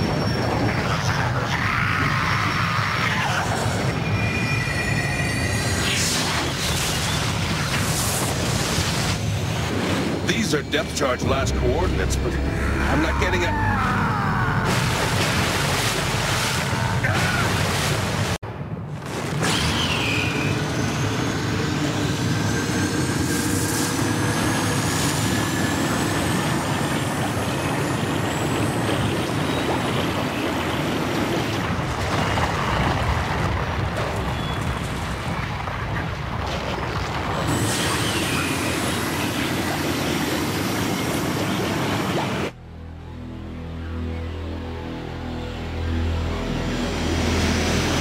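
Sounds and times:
cartoon explosion: 14.4 - 15.7.

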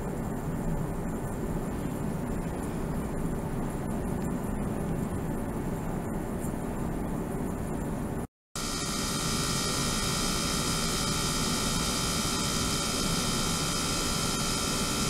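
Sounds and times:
thin high whine: 0.0 - 15.0
small electric water pump running: 8.6 - 15.0.

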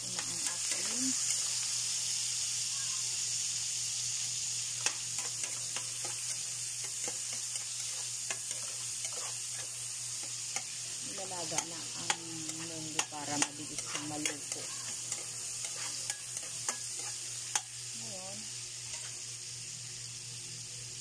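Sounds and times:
garlic and tomato sizzling in oil: 0.0 - 21.0
metal ladle scraping a wok: 7.2 - 9.7, 12.6 - 17.6.

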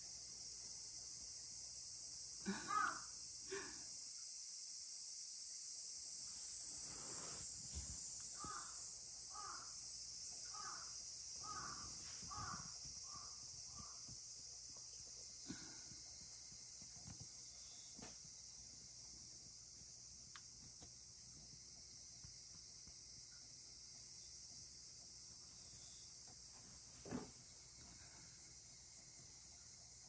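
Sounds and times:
high-pitched insect chorus: 0.0 - 30.0
bird calling: 8.4 - 9.7, 11.4 - 14.0.

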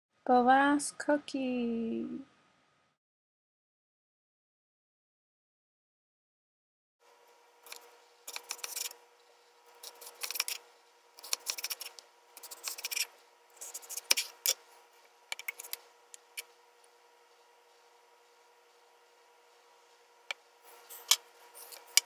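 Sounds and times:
knife slicing potato on board: 7.7 - 9.0, 9.8 - 14.6.

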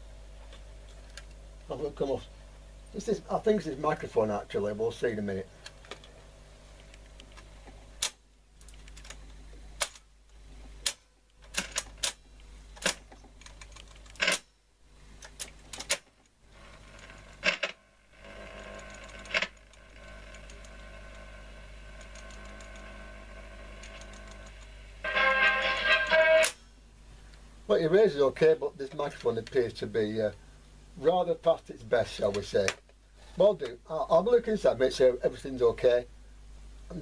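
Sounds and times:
steady hum: 0.0 - 37.0
tape deck running: 16.7 - 26.6.

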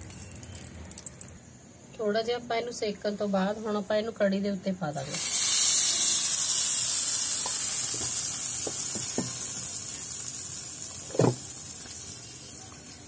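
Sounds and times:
hot oil sizzling: 4.9 - 13.0.

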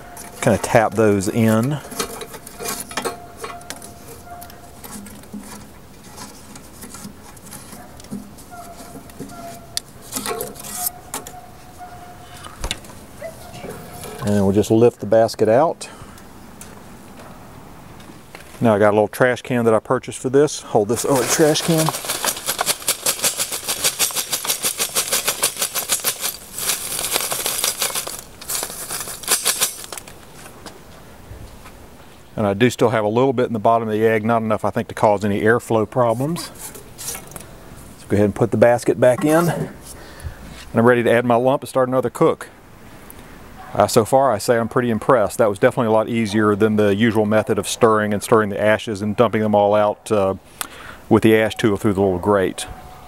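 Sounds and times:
charcoal clinking on steel basket: 0.0 - 11.4, 20.9 - 30.2
ash sifting through mesh: 20.9 - 30.1.

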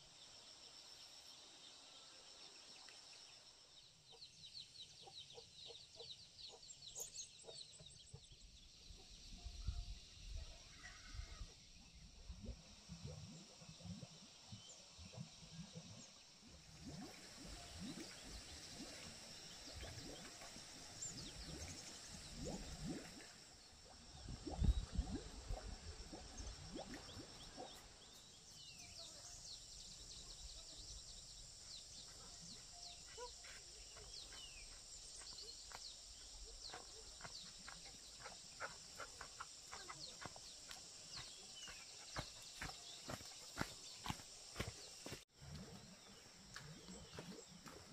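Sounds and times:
small birds chirping: 26.1 - 45.2.

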